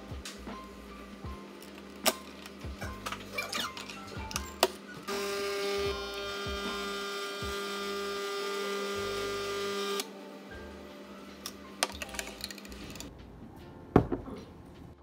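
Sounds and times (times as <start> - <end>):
coffee machine pump humming: 5.1 - 10.1
knock: 14.0 - 14.3.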